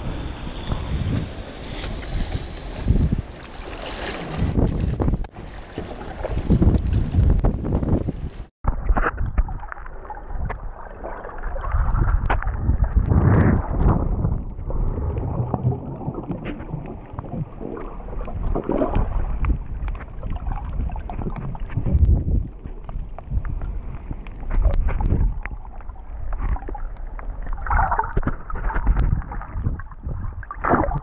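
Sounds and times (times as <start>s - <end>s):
water splashing around a kayak: 0.0s - 31.0s
muffled underwater bubbling: 8.7s - 31.0s
small underwater clicks: 18.2s - 20.3s.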